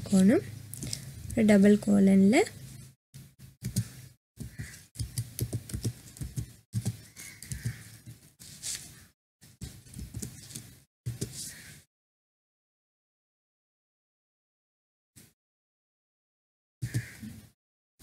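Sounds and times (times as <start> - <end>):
keyboard typing clicks: 3.6 - 7.8.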